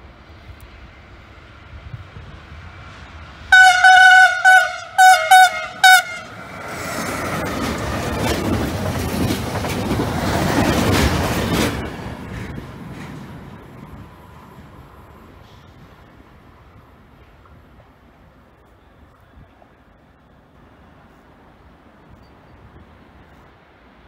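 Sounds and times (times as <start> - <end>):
train passing with rumble: 0.0 - 24.0
locomotive horn: 3.5 - 6.6.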